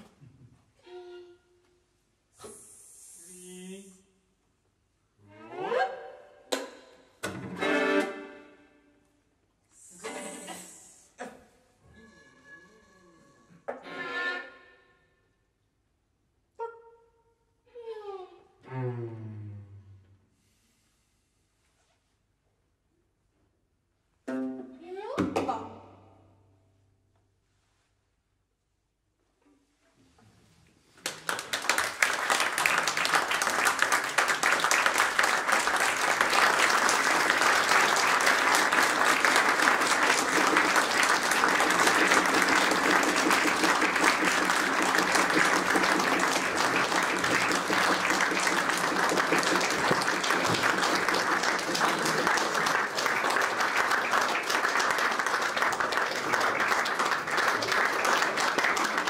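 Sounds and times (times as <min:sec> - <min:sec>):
audience applauding: 0:31.0 - 0:59.0.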